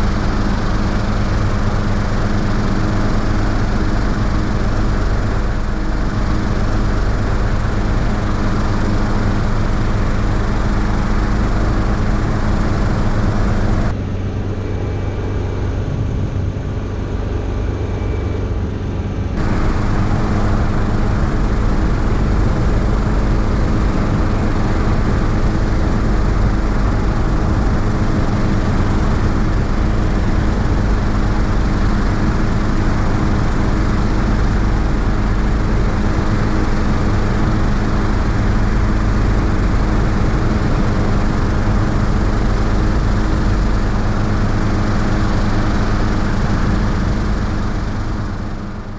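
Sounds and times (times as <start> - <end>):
helicopter engine and rotors: 0.0 - 48.9
airflow noise: 13.4 - 24.7, 45.6 - 48.9.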